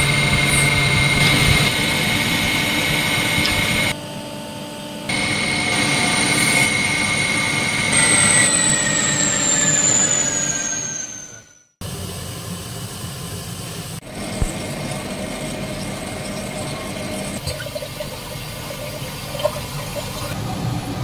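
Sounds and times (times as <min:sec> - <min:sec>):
lathe spindle high whine: 0:00.0 - 0:11.7
machine noise: 0:00.0 - 0:21.0.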